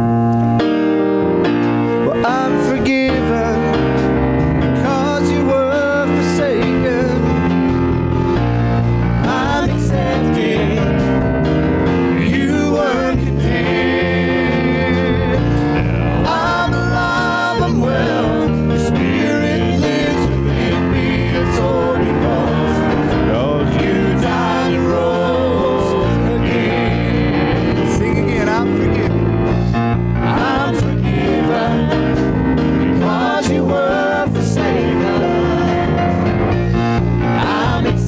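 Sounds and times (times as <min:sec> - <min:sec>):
worship band playing: 0:00.0 - 0:38.0
person singing: 0:02.0 - 0:03.9, 0:12.1 - 0:29.3.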